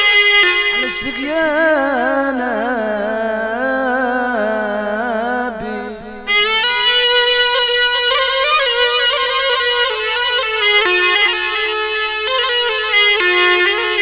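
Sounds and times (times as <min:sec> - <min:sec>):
person singing ornamented vocal line: 0:00.8 - 0:06.3
reedy bagpipe drone: 0:06.3 - 0:14.0.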